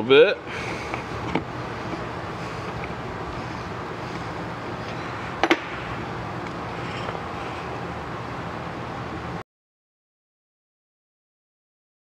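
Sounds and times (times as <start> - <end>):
workshop background hiss: 0.0 - 9.4
sharp knocks of hard parts: 5.4 - 5.9.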